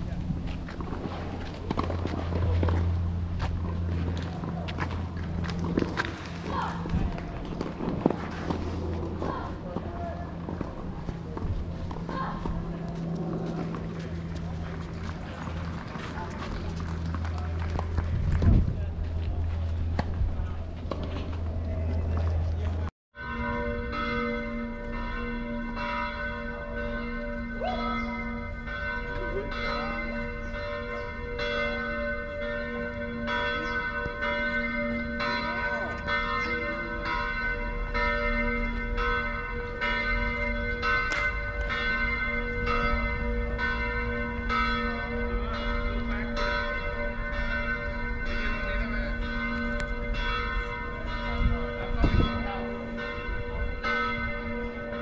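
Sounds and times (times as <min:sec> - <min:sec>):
church bells ringing a peal: 0:23.2 - 0:55.0.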